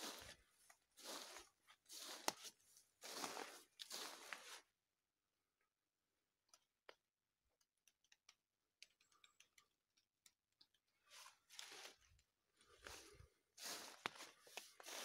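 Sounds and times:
footstep crunching in dry leaves: 0.0 - 4.7, 11.1 - 15.0
faint clicks: 7.6 - 10.8.

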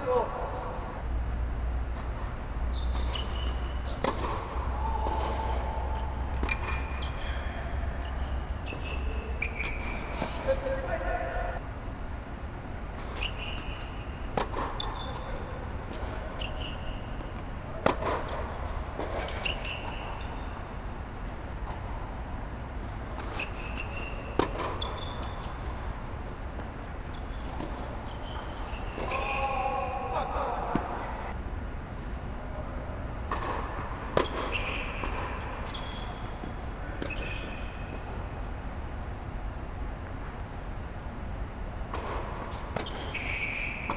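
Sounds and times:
steady low rumble: 0.0 - 13.2, 14.0 - 23.3, 29.6 - 34.2
steady low hum: 0.0 - 43.9
shoes squeaking on court: 2.0 - 11.1, 13.0 - 21.9, 23.1 - 29.6, 33.3 - 39.7, 41.8 - 43.9
racket hitting ball: 2.9 - 7.4, 17.4 - 20.0, 23.2 - 25.4, 33.3 - 35.6.

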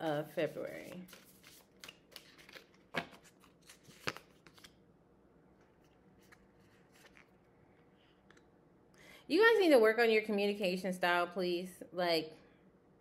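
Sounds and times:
cards being shuffled: 0.4 - 4.8, 5.6 - 7.4.

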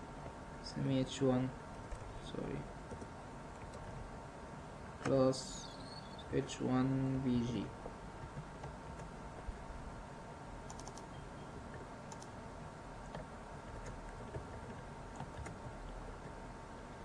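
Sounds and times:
steady low hum: 0.0 - 17.0
keyboard typing: 2.9 - 4.0, 10.6 - 12.4, 13.0 - 16.4.

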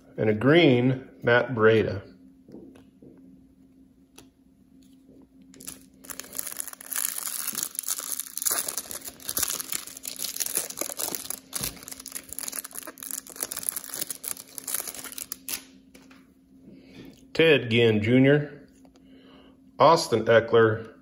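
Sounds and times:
foil wrapper tearing and crinkling: 5.6 - 15.7.

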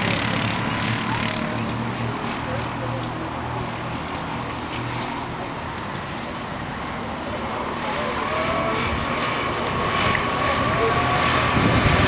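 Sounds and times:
go-kart engines droning: 0.0 - 12.0
rising engine note: 7.5 - 12.0.

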